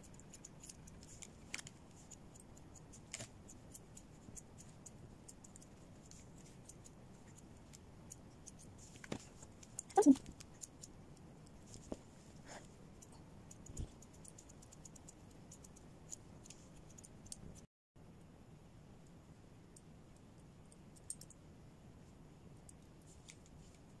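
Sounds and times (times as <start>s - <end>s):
scissors snipping fur: 0.0s - 9.0s, 9.6s - 11.8s.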